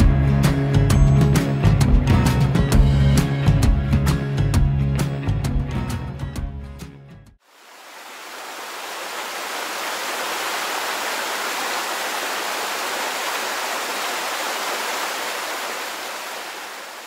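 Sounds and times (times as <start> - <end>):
waterfall rushing: 7.5 - 17.0.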